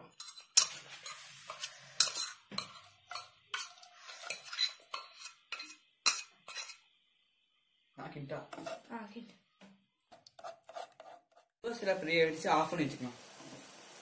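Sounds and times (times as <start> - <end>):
spoon stirring in saucepan: 0.0 - 6.9, 8.5 - 8.9, 10.1 - 11.5.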